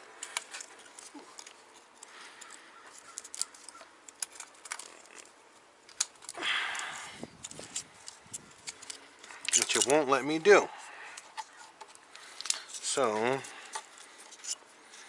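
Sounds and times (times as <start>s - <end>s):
plastic connectors clicking: 11.2s - 12.8s.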